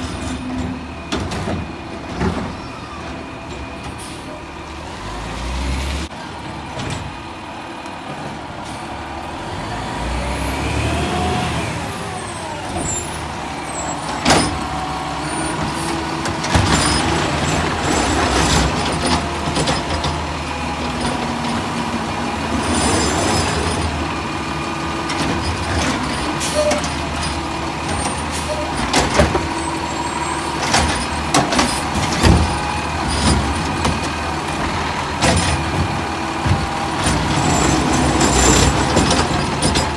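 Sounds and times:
garbage truck engine: 0.0s - 39.9s
hydraulic arm lifting cart: 10.3s - 39.9s
cart knocks and bangs: 30.6s - 34.1s, 34.7s - 39.9s.

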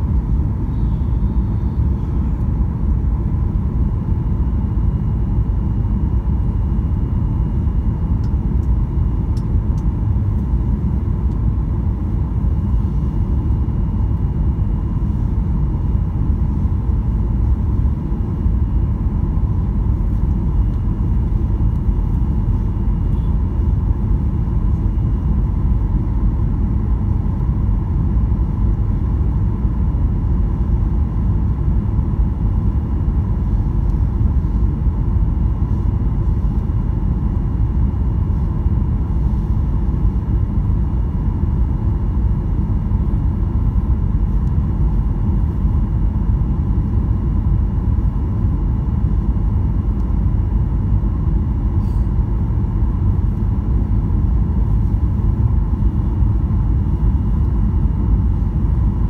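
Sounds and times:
jet engine cabin rumble: 0.0s - 59.0s
faint steady tone: 0.6s - 2.5s.

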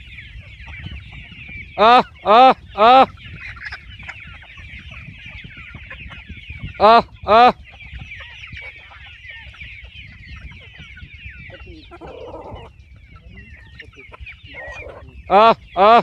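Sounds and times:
chickens clucking: 0.0s - 16.0s
high chirping chatter: 0.0s - 16.0s
hen squawking: 1.8s - 4.2s, 11.4s - 16.0s.

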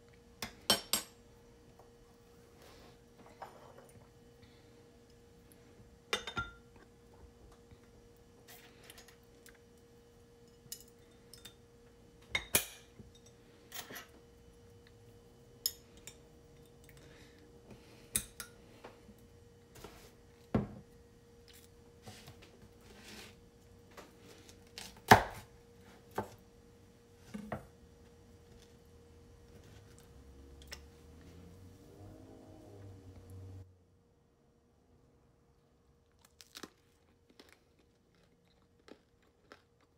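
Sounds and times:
faint steady hum: 0.0s - 39.9s
glass jar and utensils clinking: 6.2s - 6.6s.

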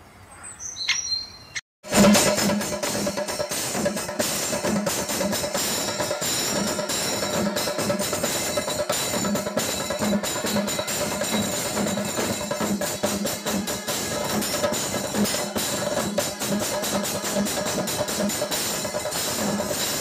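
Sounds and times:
drums played with sticks: 1.8s - 20.0s
brass horns: 13.3s - 17.4s.

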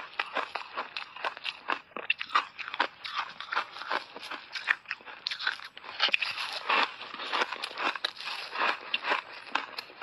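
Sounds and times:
ice crunching and chewing: 0.0s - 10.0s.

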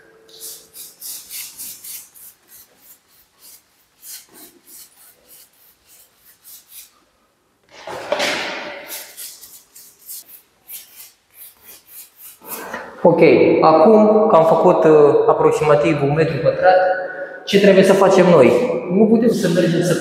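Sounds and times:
gritty paint scraping on wall: 0.3s - 7.0s.

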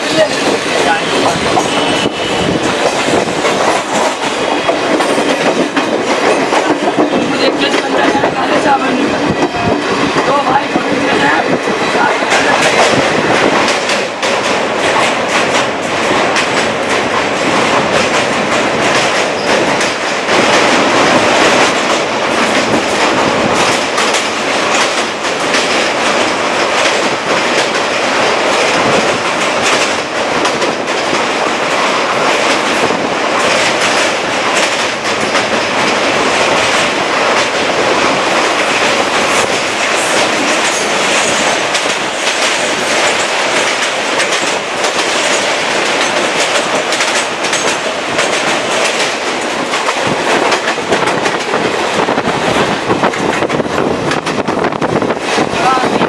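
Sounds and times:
train wheels rumbling on rails: 0.0s - 56.0s
wheels clicking over rail joints: 0.0s - 56.0s.

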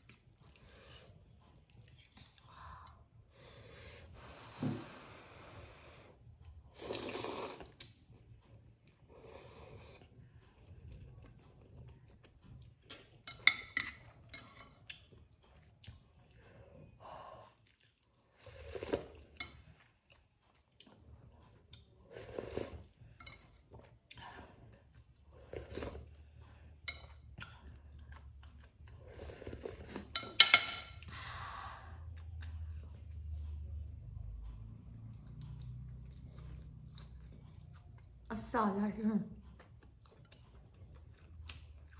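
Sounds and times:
slurping and chewing noodles: 5.5s - 13.2s, 14.8s - 30.3s, 31.9s - 38.3s
cutlery clicking on plate: 30.1s - 31.0s.

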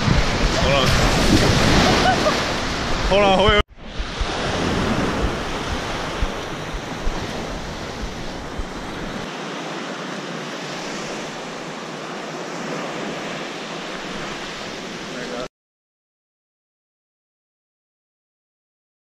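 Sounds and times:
wind buffeting microphone: 0.0s - 9.3s
ocean surf on beach: 0.0s - 15.5s.

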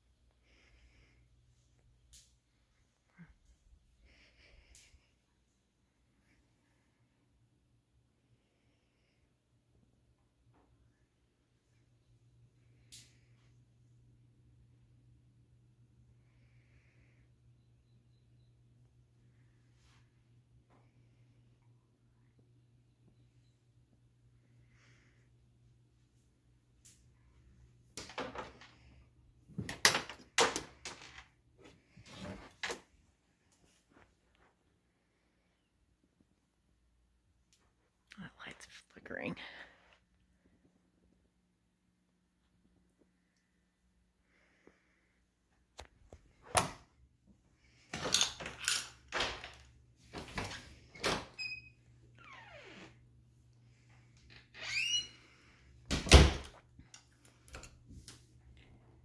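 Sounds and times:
door hinge creak: 54.5s - 55.3s.

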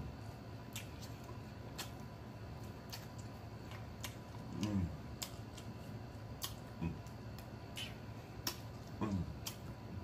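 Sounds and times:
wet mouth smacks and clicks: 6.4s - 6.7s, 7.3s - 9.7s.

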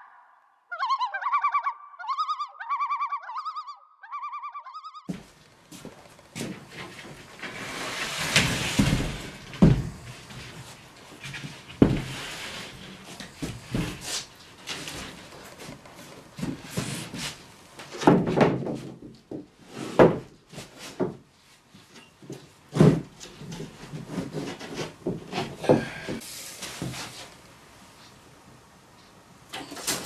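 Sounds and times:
plywood sheet knocking and thumping: 8.1s - 10.1s, 11.8s - 12.2s, 17.9s - 21.2s, 22.7s - 26.2s.

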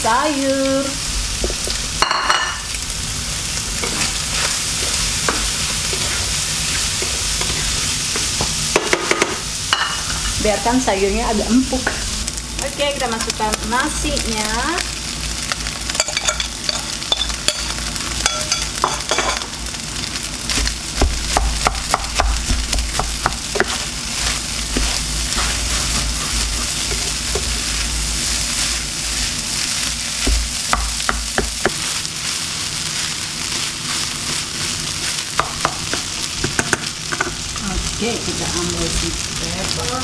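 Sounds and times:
fried rice sizzling in a pan: 0.0s - 40.0s
spatula clicking and scraping pan: 3.8s - 10.3s, 15.6s - 19.4s, 21.3s - 37.4s.

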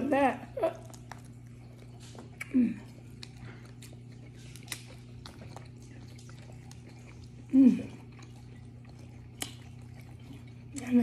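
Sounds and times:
steady low hum: 0.0s - 11.0s
mouth eating sounds: 0.4s - 11.0s
crab shell cracking: 2.0s - 6.8s.

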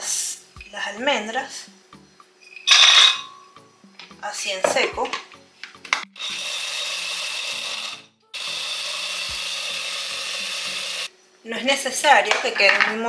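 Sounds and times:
blender grinding almonds: 6.2s - 11.1s.

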